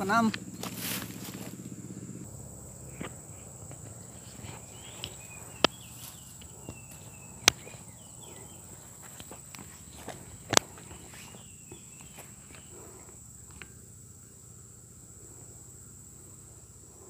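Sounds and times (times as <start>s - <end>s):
faint outdoor hush: 0.0s - 17.0s
high-pitched insect drone: 0.0s - 17.0s
faint bird chirps: 3.9s - 14.8s.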